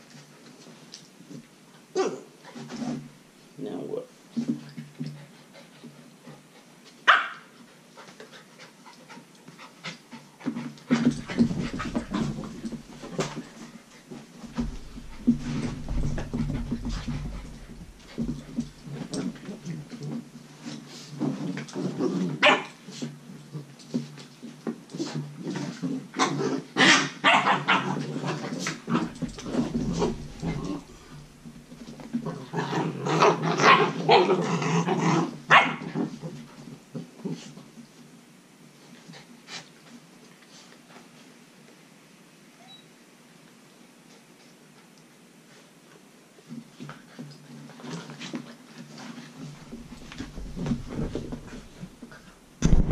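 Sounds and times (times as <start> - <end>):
puppy barking: 7.1 - 7.4, 35.5 - 35.8
puppy growls: 25.4 - 31.3, 32.2 - 36.4.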